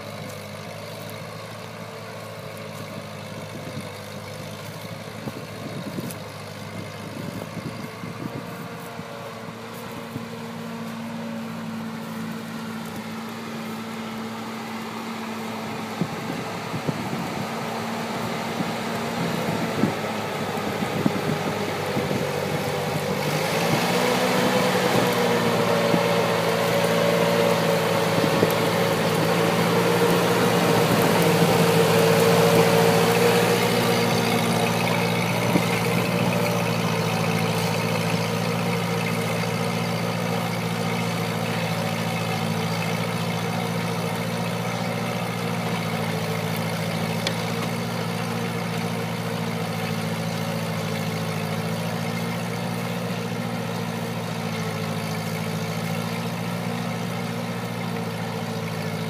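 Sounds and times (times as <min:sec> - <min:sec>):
tractor engine running under load: 0:00.0 - 0:59.0.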